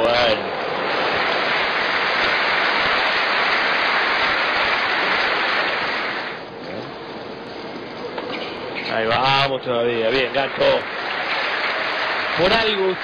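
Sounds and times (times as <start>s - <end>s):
crowd applauding: 10.8s - 13.0s.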